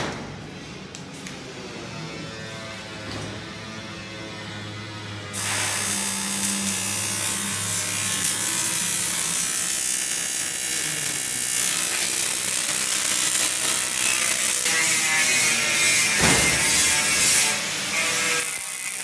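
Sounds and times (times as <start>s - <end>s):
welding machine hum: 5.3s - 19.0s
arc welding crackling hiss: 5.4s - 19.0s.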